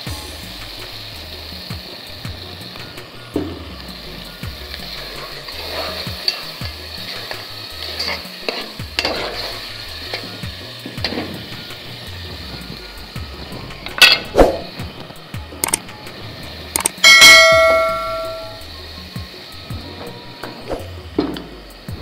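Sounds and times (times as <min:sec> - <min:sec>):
vegetables sizzling in a pot: 0:00.0 - 0:22.0
metal ladle scraping a pot: 0:05.1 - 0:10.3.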